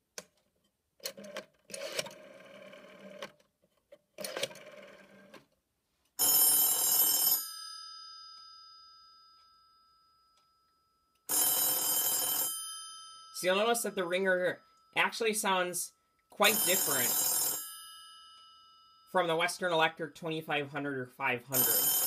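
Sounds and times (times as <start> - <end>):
rotary telephone dial whirring: 1.0 - 3.4, 4.2 - 5.4
telephone bell ringing: 6.2 - 10.3, 11.3 - 15.1, 16.4 - 19.2, 21.5 - 22.0.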